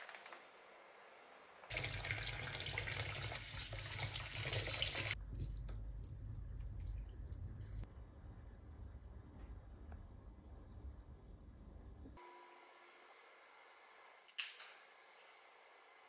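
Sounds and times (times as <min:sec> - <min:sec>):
water running into metal sink: 0:01.7 - 0:07.8
water trickling into sink: 0:01.7 - 0:07.8.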